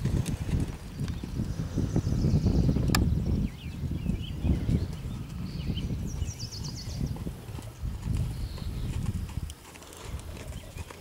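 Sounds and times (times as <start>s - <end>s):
horse hoofbeats on sand: 0.0s - 1.6s, 4.1s - 11.0s.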